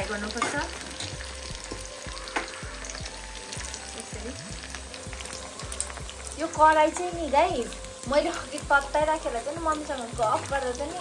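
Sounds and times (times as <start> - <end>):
meat sizzling in hot oil: 0.0 - 11.0
oil crackling: 0.0 - 11.0.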